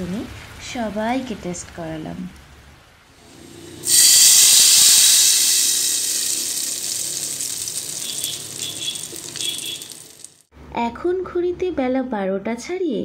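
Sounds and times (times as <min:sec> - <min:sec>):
spices sizzling in hot oil: 0:03.2 - 0:10.5.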